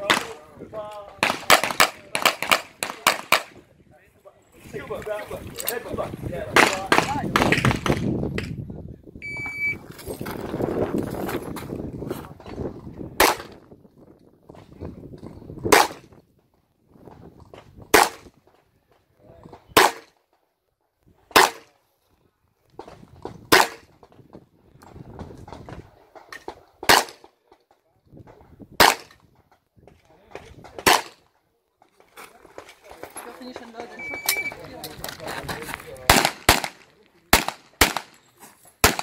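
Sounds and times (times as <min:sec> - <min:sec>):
handgun shots: 0:23.5 - 0:23.9, 0:26.8 - 0:27.2, 0:28.8 - 0:29.2, 0:30.8 - 0:31.2, 0:36.1 - 0:38.2.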